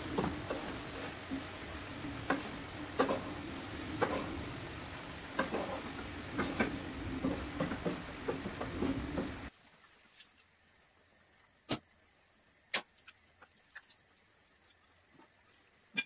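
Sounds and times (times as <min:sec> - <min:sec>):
spatula knocking and scraping pan: 0:00.0 - 0:04.5, 0:05.2 - 0:09.5
food sizzling in a frying pan: 0:00.0 - 0:09.5.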